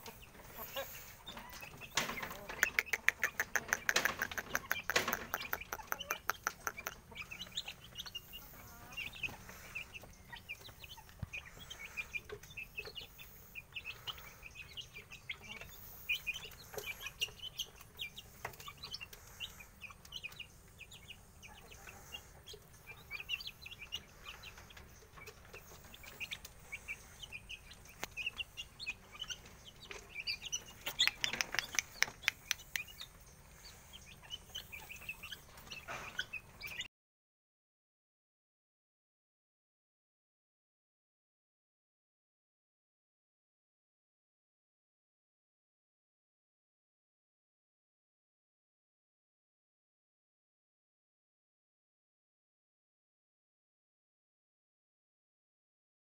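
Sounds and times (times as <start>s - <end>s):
chicks peeping and clucking: 0.0s - 36.9s.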